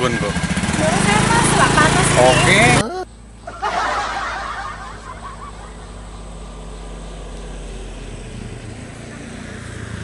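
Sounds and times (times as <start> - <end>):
motor scooter engine running: 0.0 - 3.0.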